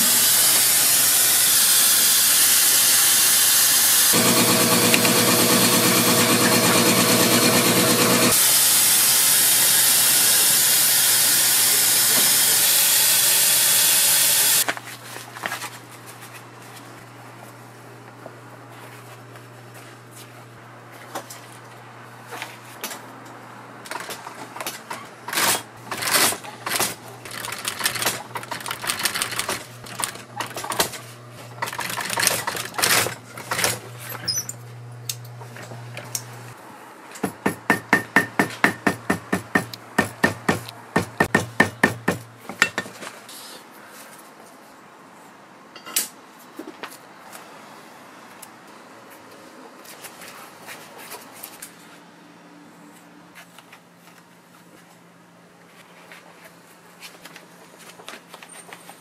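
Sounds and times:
workshop machine hissing: 0.0s - 14.6s
sewing machine motor humming: 3.9s - 8.4s, 12.0s - 14.6s, 27.2s - 30.6s
sewing machine stitching leather: 4.1s - 8.4s, 25.3s - 31.0s, 31.6s - 34.4s.

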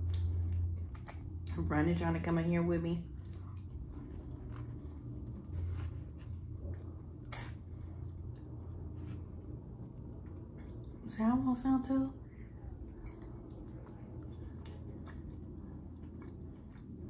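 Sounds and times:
low hum: 0.0s - 17.0s
person chewing: 3.1s - 9.2s, 12.6s - 17.0s.

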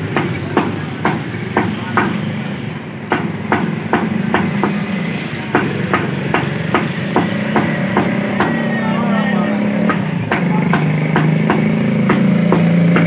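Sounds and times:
cleaver chopping on wooden block: 3.1s - 4.8s, 5.5s - 8.6s, 9.8s - 13.0s.

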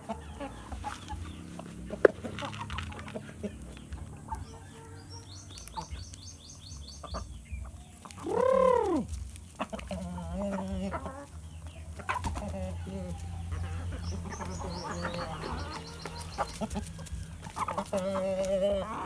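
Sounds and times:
chickens clucking: 0.0s - 19.0s
chicken squawk: 7.0s - 19.0s.

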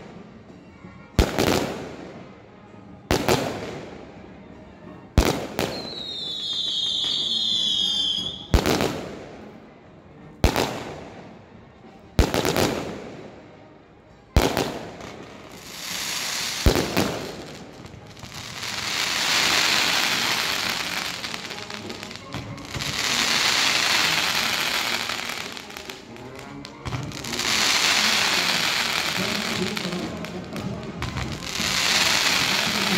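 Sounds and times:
fireworks bangs with echo: 14.4s - 26.1s.

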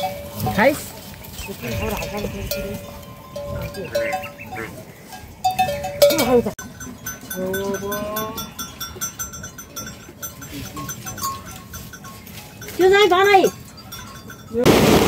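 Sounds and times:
small animal bells clinking: 0.0s - 14.7s
farm animals bleating: 1.4s - 5.1s.

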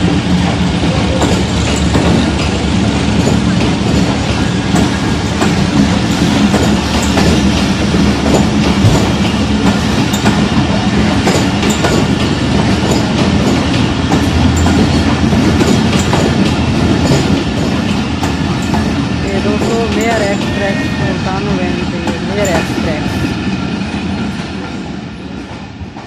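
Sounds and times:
train coaches rumbling past: 0.0s - 26.0s
wheels clicking over rail joints: 0.4s - 20.6s.

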